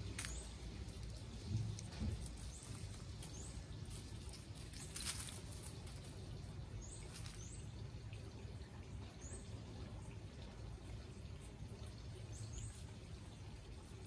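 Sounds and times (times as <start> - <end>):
rustle in dry leaf litter: 0.0 - 8.1.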